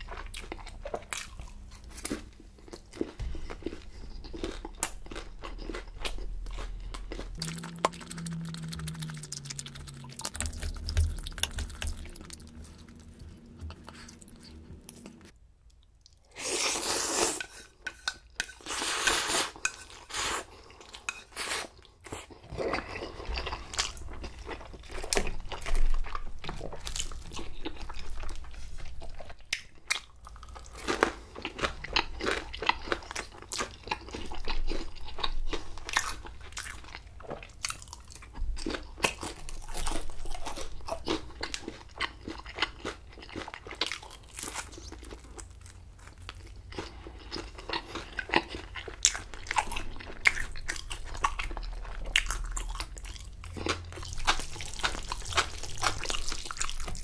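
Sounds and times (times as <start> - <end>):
wet crunchy chewing: 0.0 - 15.4, 21.6 - 57.0
loud noodle slurps: 16.3 - 17.5.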